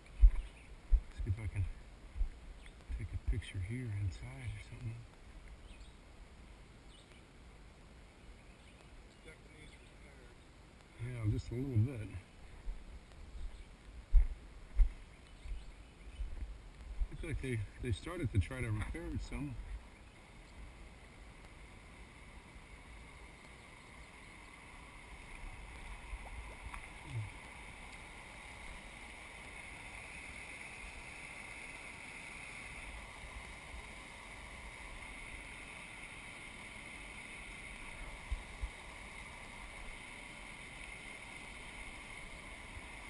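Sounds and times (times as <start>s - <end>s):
water rushing: 17.1s - 43.0s.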